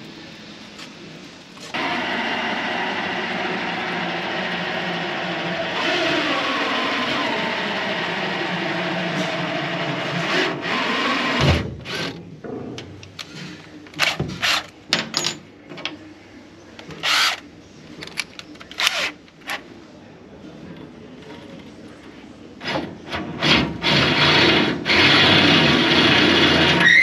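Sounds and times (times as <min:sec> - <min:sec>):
cordless drill driving bolts: 0:23.4 - 0:27.0.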